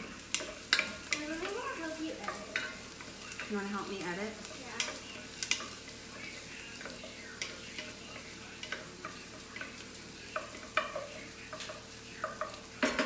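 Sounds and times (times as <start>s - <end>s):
vegetables sizzling in a pot: 0.0s - 13.0s.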